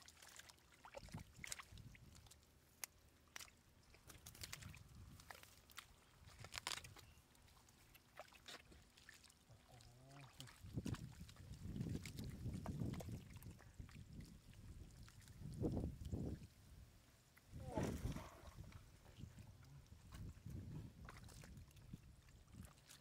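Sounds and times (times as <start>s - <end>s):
hands squelching in mud: 0.0s - 15.5s
fish thrashing in muddy water: 3.3s - 15.6s, 17.5s - 19.0s.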